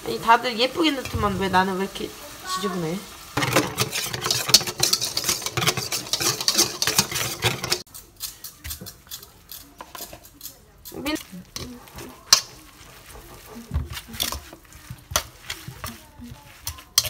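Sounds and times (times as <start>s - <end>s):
whisk beating batter in metal bowl: 3.4s - 17.0s.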